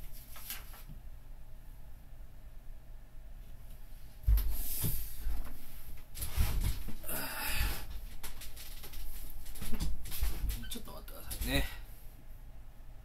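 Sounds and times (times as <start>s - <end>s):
rustling and knocks: 4.2s - 7.0s, 7.8s - 11.5s.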